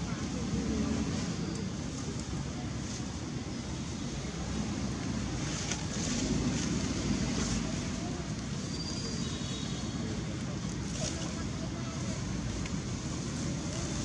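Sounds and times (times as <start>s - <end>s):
low outdoor rumble: 0.0s - 8.8s
faint rustles: 10.3s - 14.0s.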